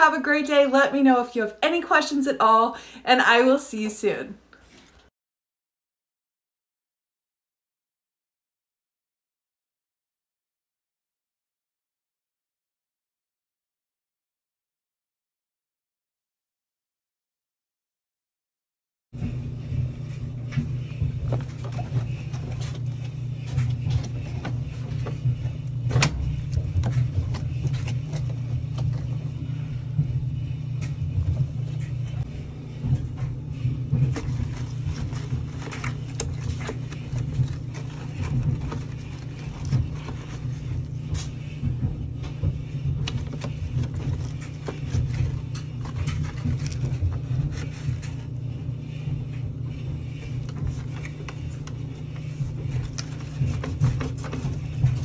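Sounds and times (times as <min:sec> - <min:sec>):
knocks and scrapes: 0:19.2 - 0:55.0
low rumble: 0:19.2 - 0:55.0
sponge scrubbing tub: 0:19.2 - 0:55.0.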